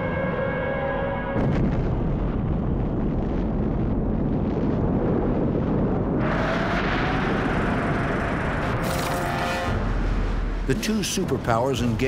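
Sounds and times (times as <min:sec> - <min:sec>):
deep explosion rumble: 0:01.3 - 0:09.0.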